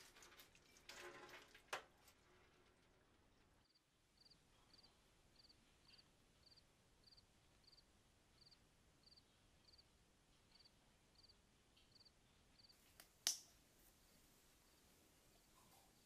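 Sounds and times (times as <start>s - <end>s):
crickets chirping: 3.6s - 9.8s, 10.5s - 12.7s.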